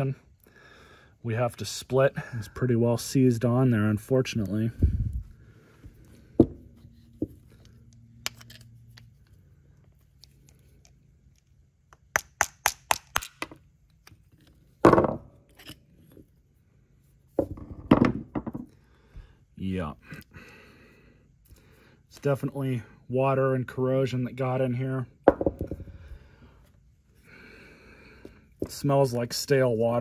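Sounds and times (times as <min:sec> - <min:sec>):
metal part knocking on workbench: 0:25.3 - 0:25.9.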